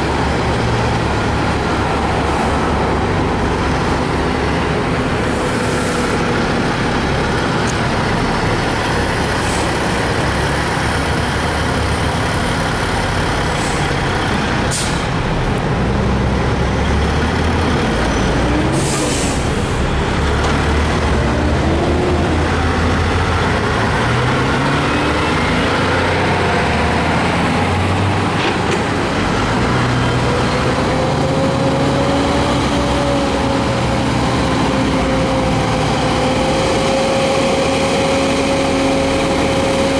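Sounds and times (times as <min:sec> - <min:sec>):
heavy diesel trucks passing: 0:00.0 - 0:39.9
air brake hisses: 0:14.7 - 0:15.2, 0:18.8 - 0:19.8.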